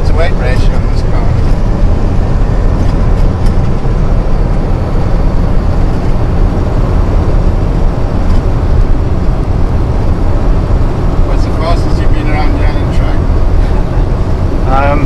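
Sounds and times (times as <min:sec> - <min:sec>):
road noise: 0:00.0 - 0:15.0
truck diesel engine rumble: 0:00.0 - 0:15.0.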